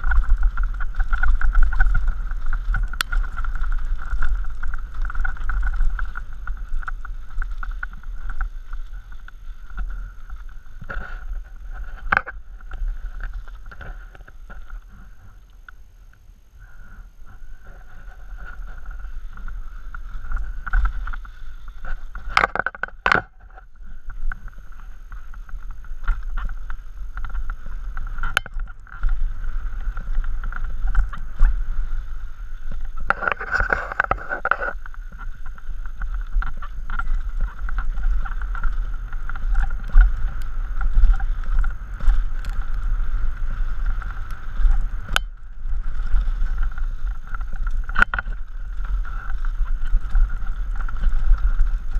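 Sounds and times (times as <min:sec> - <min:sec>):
bike knocking and rattling on rocks: 0:00.0 - 0:15.0, 0:17.6 - 0:51.9
tyres rolling on dirt: 0:00.0 - 0:15.5
constant high buzz: 0:00.0 - 0:51.9
wind on microphone: 0:00.0 - 0:51.9.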